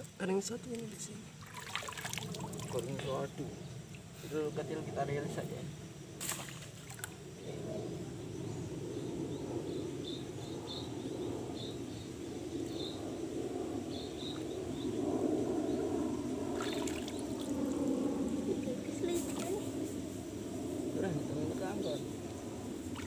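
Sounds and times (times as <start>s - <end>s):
stream water sloshing around legs: 0.8s - 3.1s, 6.2s - 7.2s, 16.6s - 19.6s.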